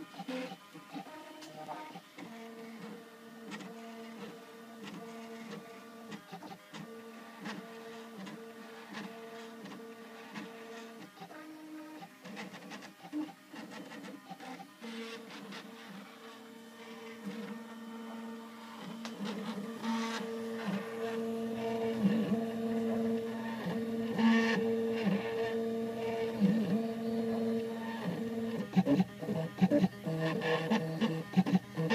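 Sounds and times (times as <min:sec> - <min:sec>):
stepper motors whining: 0:14.0 - 0:31.9.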